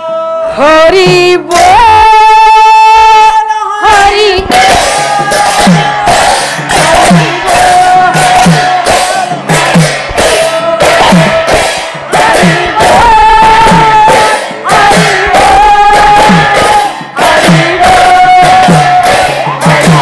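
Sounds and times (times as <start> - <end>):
group of voices singing: 0.0 - 20.0
bright percussion strikes: 3.9 - 20.0
deep drum strokes: 4.4 - 20.0.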